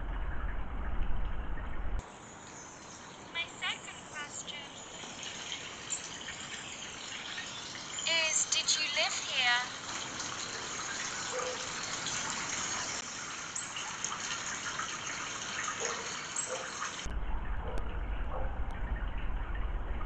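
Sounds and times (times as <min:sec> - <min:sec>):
low rumble: 0:00.0 - 0:02.0, 0:17.1 - 0:20.0
running spring water: 0:02.0 - 0:20.0.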